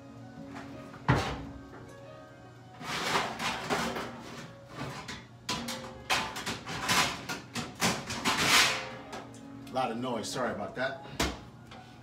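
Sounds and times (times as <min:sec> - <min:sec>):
metal pans clattering: 0:02.8 - 0:09.2.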